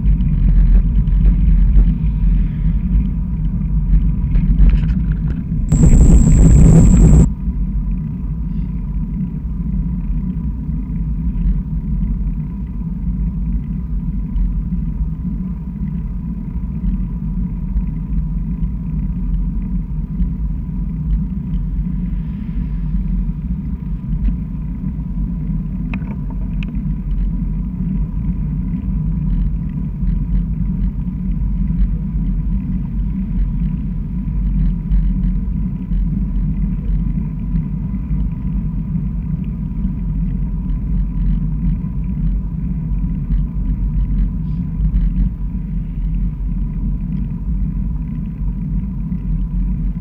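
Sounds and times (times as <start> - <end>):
faint steady whine: 5.3 - 7.3
high steady tone: 5.6 - 7.3.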